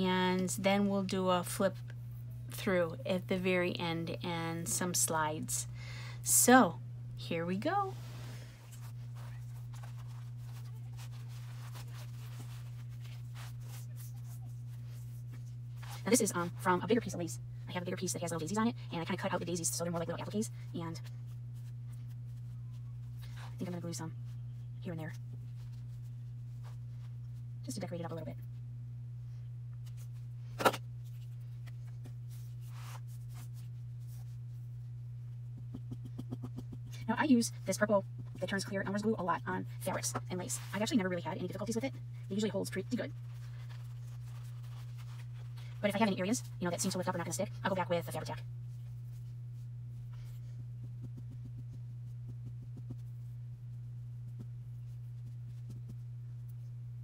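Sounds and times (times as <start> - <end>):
steady low hum: 0.0 - 57.0
hands rustling paper: 8.1 - 16.1.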